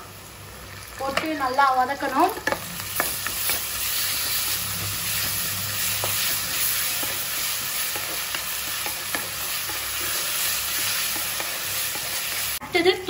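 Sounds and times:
onions sizzling in hot oil: 0.0s - 12.9s
spatula scraping a pan: 2.4s - 12.6s.

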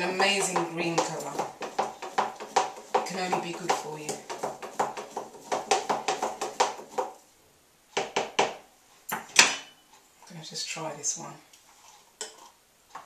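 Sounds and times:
spoon stirring in plastic jug: 0.0s - 7.2s, 11.6s - 13.0s.

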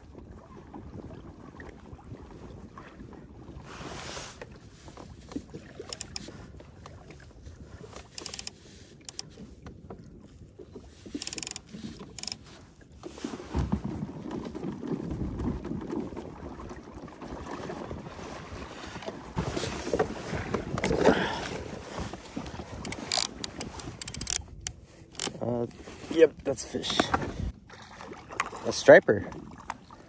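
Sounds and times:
water rushing along kayak hull: 0.0s - 30.0s
short clicks and rattles: 5.9s - 6.3s, 8.0s - 9.3s, 11.1s - 12.4s, 22.8s - 25.4s
wind on microphone: 13.4s - 27.7s.

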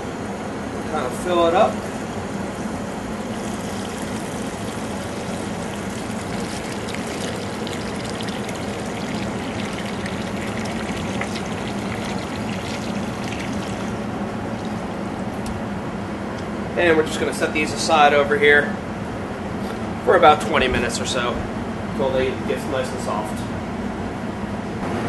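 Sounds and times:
water pouring into metal pot: 3.2s - 14.9s.

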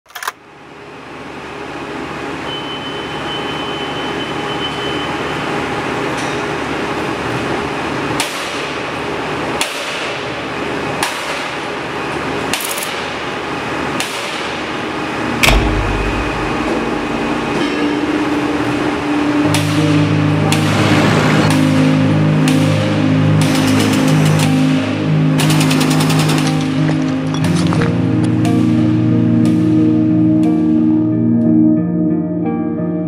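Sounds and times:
steady mechanical hum: 0.1s - 31.1s
sharp metallic impacts: 15.4s - 18.6s
heavy low rumble: 15.4s - 18.7s.

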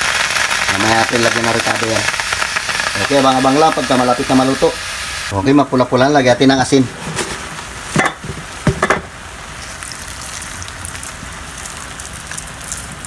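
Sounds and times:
shrimp sizzling in a pan: 0.0s - 5.3s, 9.5s - 13.0s.

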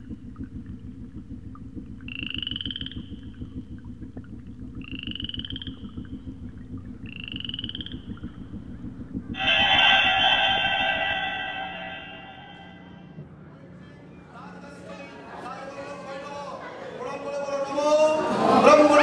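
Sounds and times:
frogs croaking: 0.0s - 13.1s
higher pulsed frog call: 0.0s - 13.2s.

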